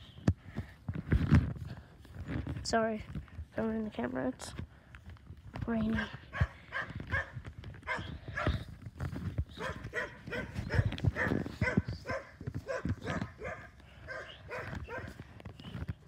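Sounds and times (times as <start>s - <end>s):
dog barking: 6.3s - 8.6s, 9.6s - 15.1s.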